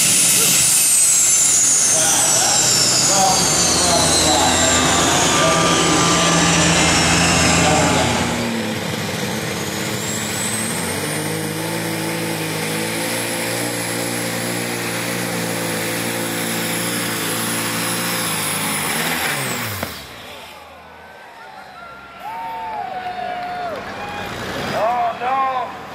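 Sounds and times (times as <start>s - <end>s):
high whine: 0.0s - 11.6s
tractor engine under load: 0.0s - 20.8s
loud tractor engine: 0.0s - 22.9s, 23.6s - 25.9s.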